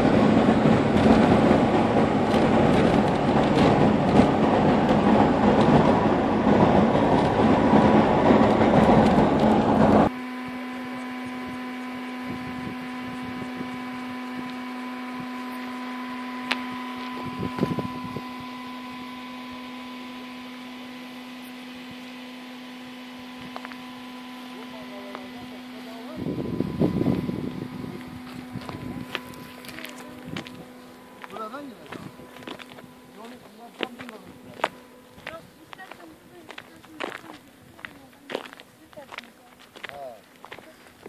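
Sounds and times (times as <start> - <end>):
tyres rumbling on paving blocks: 0.0 - 10.2, 23.0 - 41.0.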